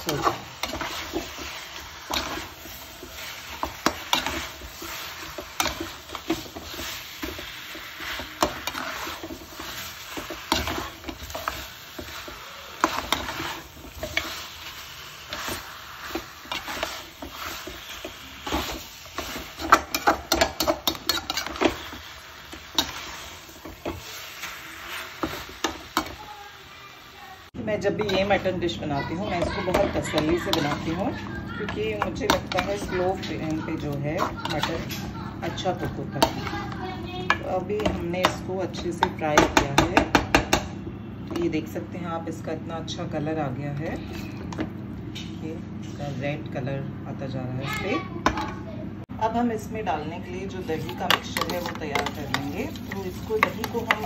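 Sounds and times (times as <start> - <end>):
wooden spatula scraping a pot: 0.0 - 26.2, 28.0 - 39.5, 50.4 - 54.0
low sizzle of frying: 0.0 - 54.0.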